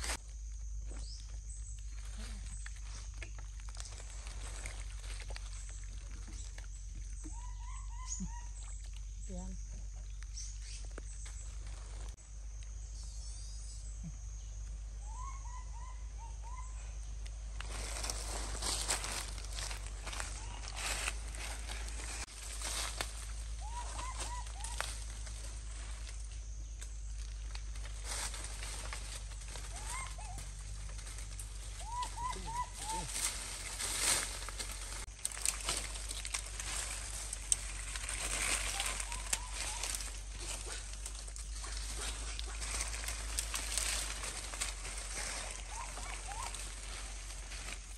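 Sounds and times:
baby monkey squeaking: 0:07.3 - 0:08.6, 0:23.6 - 0:24.8, 0:29.7 - 0:30.4, 0:31.8 - 0:33.1
rustling with sharp clicks: 0:33.1 - 0:47.9.

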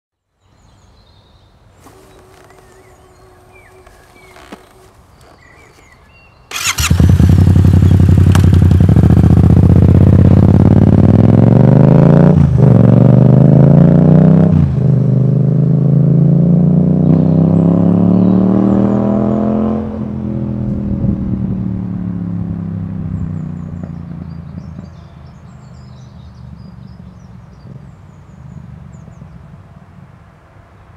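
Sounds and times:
motorcycle engine accelerating: 0:06.5 - 0:25.0.

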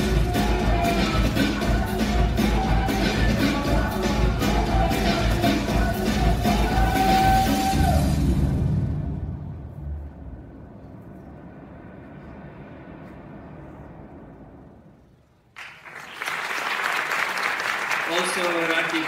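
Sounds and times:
music: 0:00.0 - 0:14.8
audience applause: 0:15.5 - 0:19.0.

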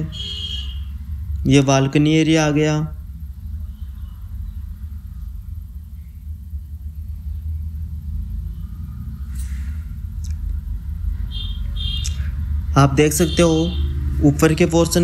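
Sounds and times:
steady low rumble: 0:00.0 - 0:15.0
faint hisses: 0:00.8 - 0:11.4.

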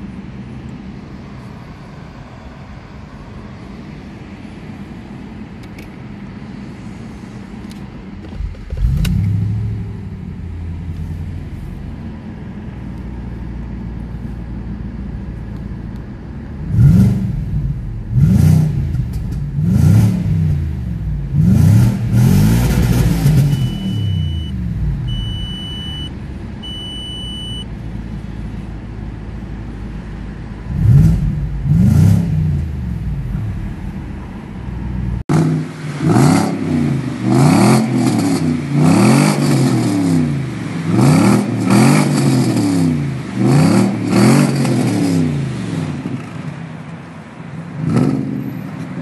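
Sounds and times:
car engine idling and revving: 0:00.0 - 0:49.0
car exhaust revving: 0:08.2 - 0:13.9, 0:16.4 - 0:27.2, 0:27.9 - 0:46.2
dashboard warning chime: 0:23.4 - 0:27.7.

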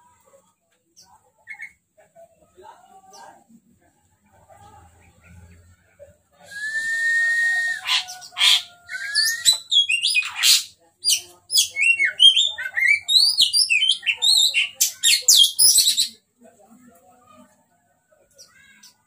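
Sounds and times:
bird singing whistled notes: 0:08.9 - 0:10.3.

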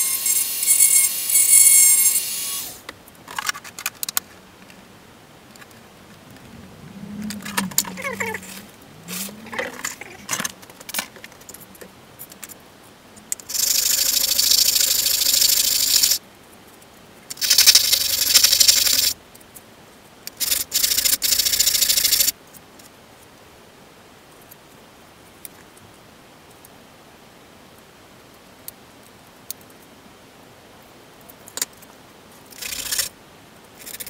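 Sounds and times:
clicks and knocks of handling: 0:02.8 - 0:04.8, 0:09.5 - 0:12.6
plastic rubbing on sandpaper: 0:07.2 - 0:11.7.

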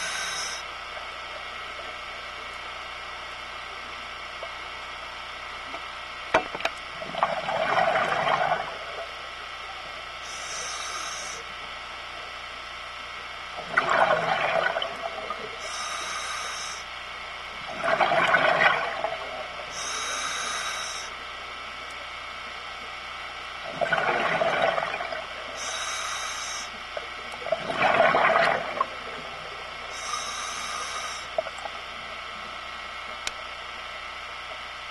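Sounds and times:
regulator inhale hiss: 0:00.0 - 0:00.7, 0:10.2 - 0:11.5, 0:15.6 - 0:16.9, 0:19.7 - 0:21.2, 0:25.5 - 0:26.8, 0:29.9 - 0:31.4
exhaled bubbles gushing: 0:06.9 - 0:09.2, 0:13.6 - 0:15.6, 0:17.6 - 0:19.9, 0:23.6 - 0:25.6, 0:27.3 - 0:29.9.

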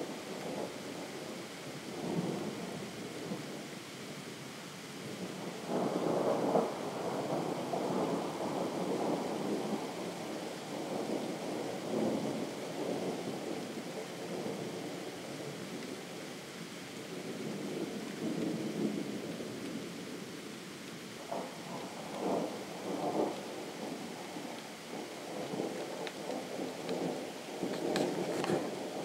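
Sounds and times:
distant thunder rumbling: 0:21.2 - 0:29.0.

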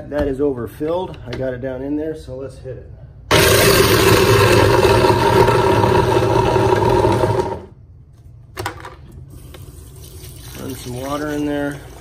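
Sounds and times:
garbage disposal grinding ice: 0:03.3 - 0:07.7.

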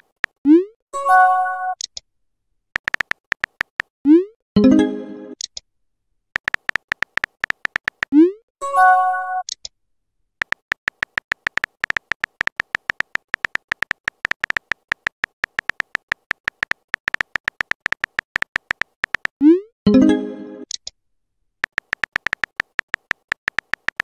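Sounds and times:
keyboard typing clicks: 0:02.8 - 0:03.9, 0:06.4 - 0:08.2, 0:10.4 - 0:19.6, 0:21.6 - 0:24.0.

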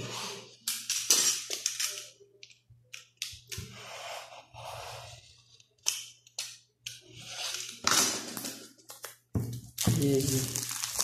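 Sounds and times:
packaging rustling: 0:09.8 - 0:11.0.

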